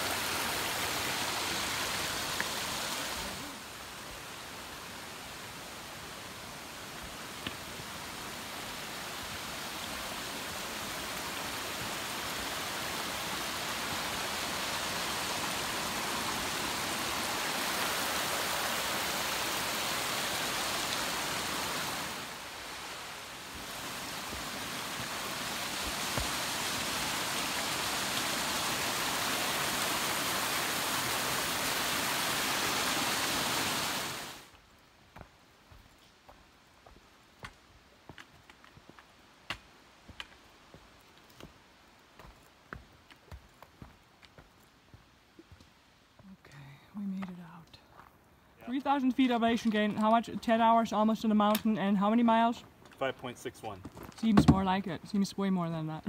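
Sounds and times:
rushing water: 0.0 - 34.7.

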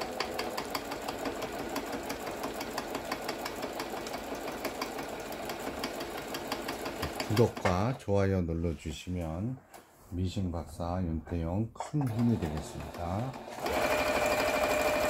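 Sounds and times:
sewing machine stitching: 0.0 - 8.0, 12.0 - 15.0.

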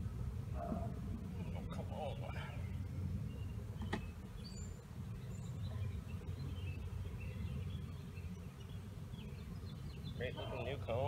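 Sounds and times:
low outdoor background noise: 0.0 - 11.0.

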